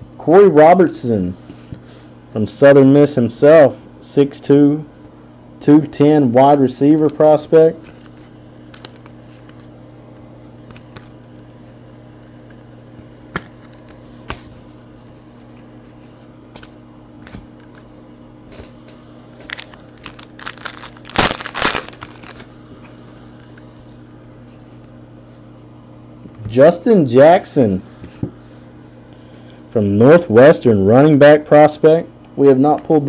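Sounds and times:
steady low hum: 0.0s - 33.0s
wrapper crinkling and tearing: 8.7s - 9.5s, 19.4s - 22.5s.

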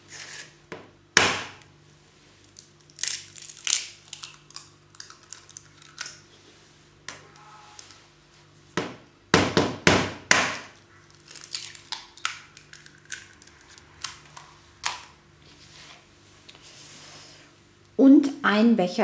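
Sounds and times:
eggs cracking: 2.6s - 6.2s, 11.1s - 15.1s
eggshells crackling: 11.1s - 14.2s.

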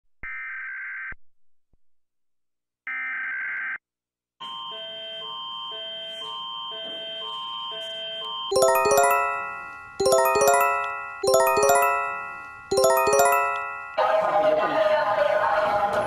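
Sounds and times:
alert attention signal tones: 8.5s - 14.0s.

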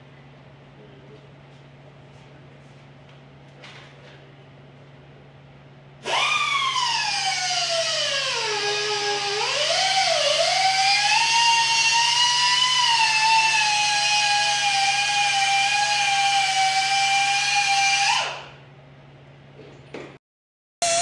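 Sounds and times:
power tool whine: 6.0s - 18.6s.

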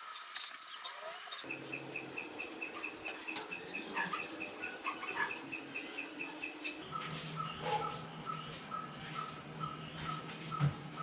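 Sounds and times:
rapid high-pitched chirping: 0.1s - 6.9s.

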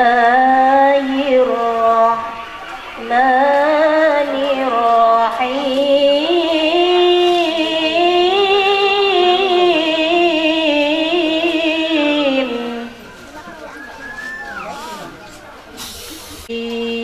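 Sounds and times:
woman chanting into microphone: 0.0s - 13.0s, 16.5s - 17.0s.

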